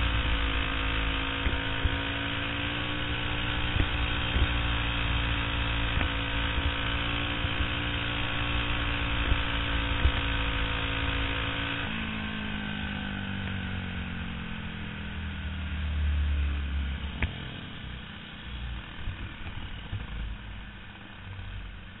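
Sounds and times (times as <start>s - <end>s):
kart engine revving: 0.0s - 14.6s.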